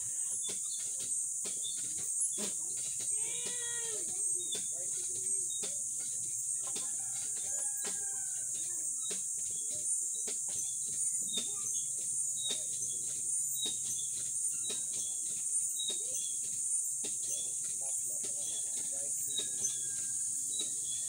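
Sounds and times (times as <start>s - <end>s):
rooster crowing: 6.8s - 8.5s.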